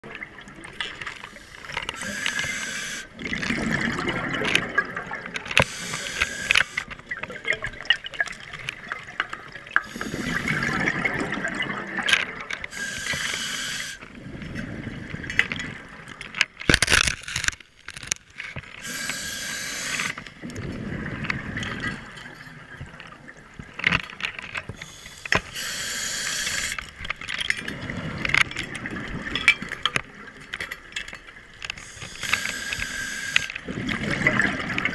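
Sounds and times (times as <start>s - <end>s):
exhaled bubbles rushing: 0.0s - 5.6s, 6.3s - 13.1s, 20.4s - 22.2s, 33.6s - 34.9s
scuba regulator breathing: 1.3s - 3.2s, 5.6s - 6.9s, 9.8s - 11.1s, 12.7s - 14.0s, 18.8s - 20.3s, 24.8s - 26.9s, 31.8s - 33.6s.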